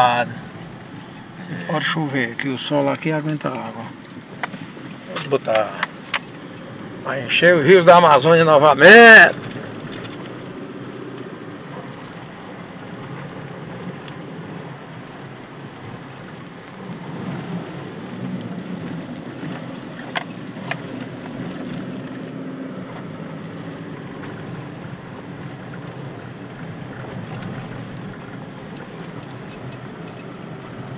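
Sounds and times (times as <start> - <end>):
car road and engine noise: 0.0 - 30.9.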